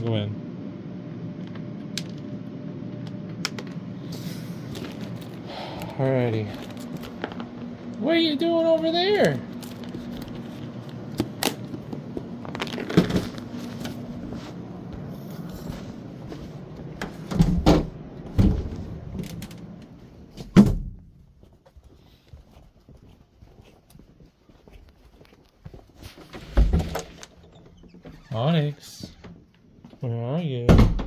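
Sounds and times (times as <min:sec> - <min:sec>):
door thud: 0:20.4 - 0:21.0, 0:30.7 - 0:31.0.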